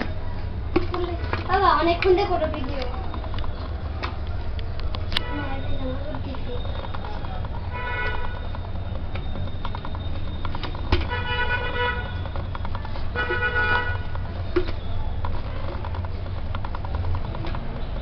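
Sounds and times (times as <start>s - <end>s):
vehicle horn honking: 5.2s - 5.7s, 7.7s - 8.5s, 11.0s - 12.2s, 13.1s - 14.2s.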